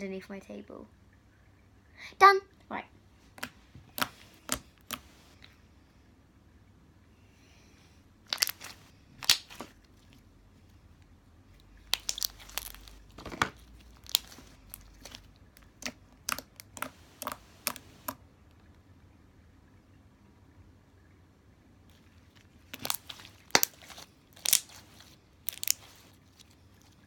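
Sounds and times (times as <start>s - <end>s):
slime popping and crackling: 3.4s - 5.3s, 8.3s - 10.1s, 11.7s - 18.2s, 21.9s - 26.5s.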